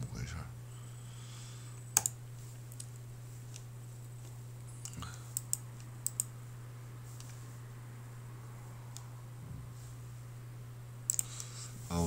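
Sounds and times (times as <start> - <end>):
low electrical hum: 0.0 - 12.0
computer mouse clicks: 1.9 - 3.7, 4.8 - 6.3, 11.1 - 11.5.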